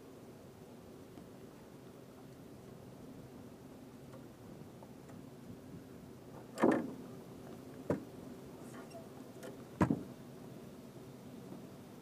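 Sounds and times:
faint steady hum: 0.0s - 12.0s
knocks in a boat: 7.9s - 8.1s, 9.8s - 10.1s.

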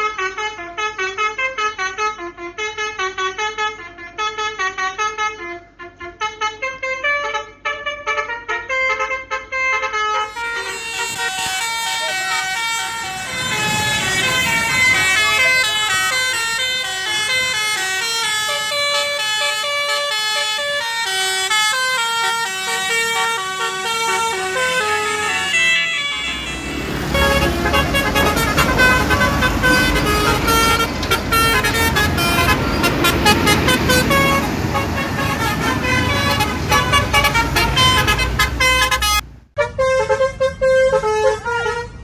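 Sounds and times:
multi-note air horn tune: 0.0s - 42.0s
bus engine passing: 10.2s - 39.6s.

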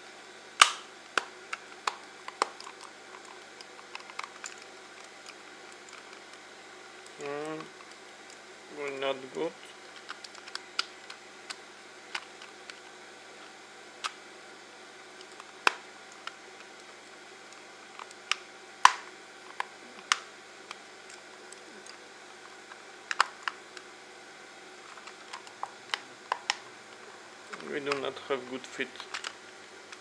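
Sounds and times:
plastic mouse shell clicks and snaps: 0.6s - 1.3s.

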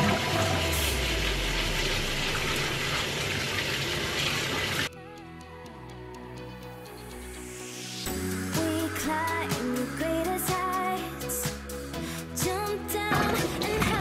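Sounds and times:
background music: 0.0s - 2.3s, 4.9s - 14.0s.

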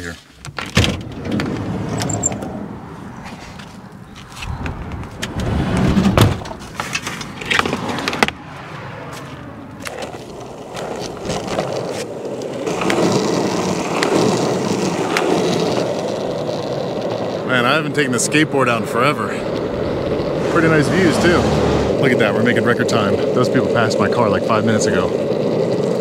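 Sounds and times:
van side door shutting: 0.5s - 2.7s, 4.5s - 6.7s
skateboard rolling on asphalt: 1.0s - 26.0s.

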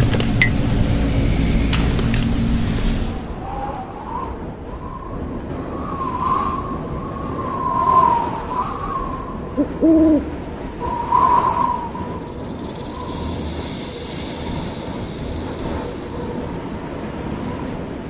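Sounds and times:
steady high hiss: 0.0s - 3.4s, 12.2s - 17.5s.

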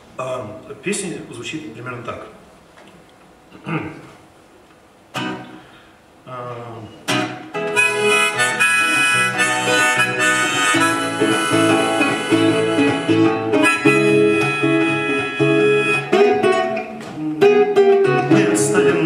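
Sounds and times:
acoustic guitar chords: 5.1s - 5.8s, 6.6s - 19.0s
harmonica melody: 7.2s - 19.0s.

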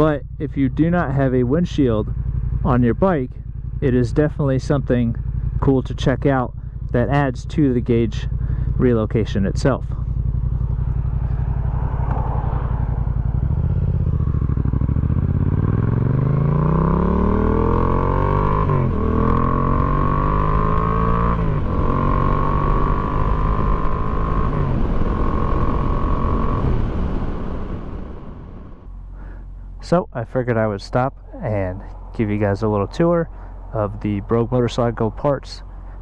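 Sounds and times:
motorcycle engine accelerating: 0.0s - 36.0s.

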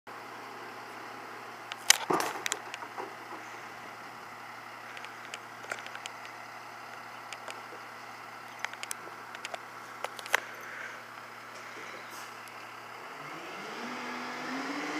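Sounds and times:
diesel truck engine running: 0.1s - 14.9s
sharp knocks and clatter: 1.8s - 3.4s.

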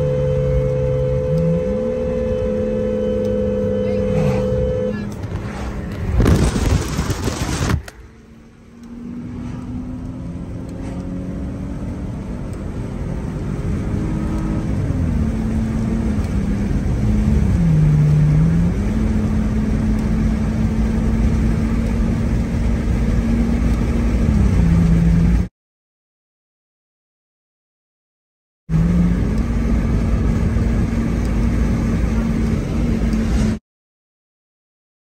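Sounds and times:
car engine hum: 0.0s - 25.5s, 28.7s - 33.6s
road noise inside car: 0.0s - 25.5s, 28.7s - 33.6s
loud burst of sound: 5.6s - 7.9s.

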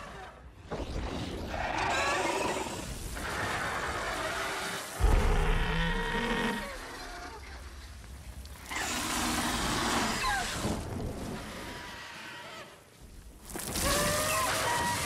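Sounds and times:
rushing noise: 5.0s - 7.1s
deep boom: 5.0s - 7.3s.

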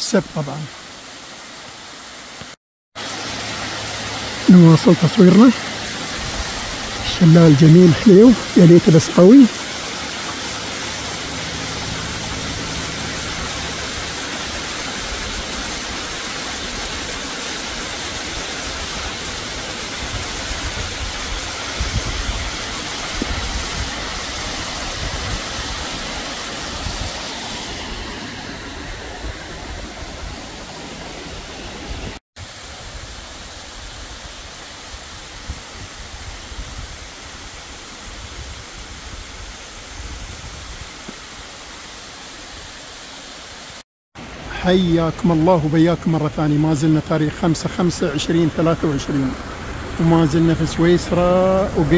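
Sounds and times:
waterfall rushing hiss: 0.0s - 51.9s.

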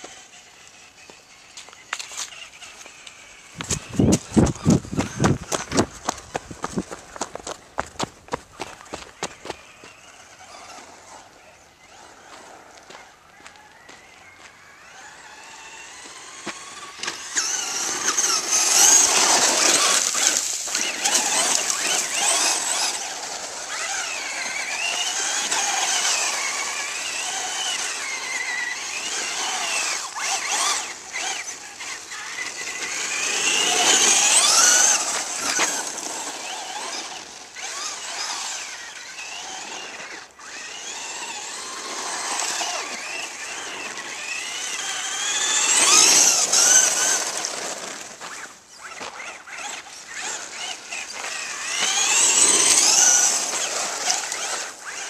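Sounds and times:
toy car motor whining: 0.0s - 55.0s
tyres on loose gravel: 0.0s - 55.0s.

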